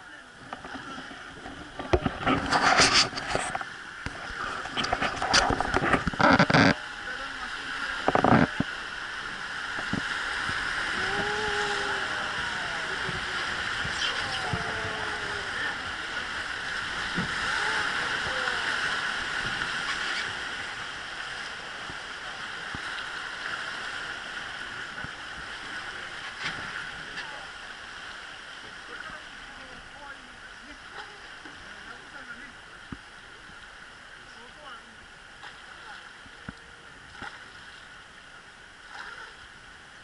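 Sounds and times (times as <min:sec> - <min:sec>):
river rapids rushing: 0:01.7 - 0:24.6.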